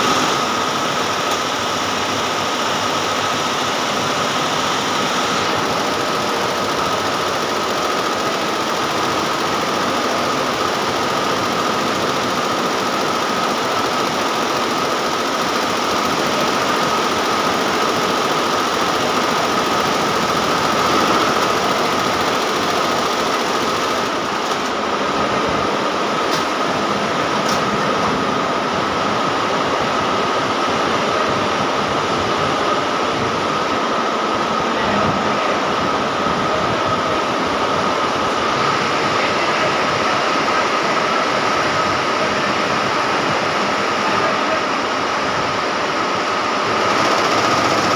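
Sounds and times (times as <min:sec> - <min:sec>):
embroidery machine clatter: 0:00.0 - 0:28.5, 0:45.6 - 0:47.9
high machine whine: 0:00.0 - 0:47.9.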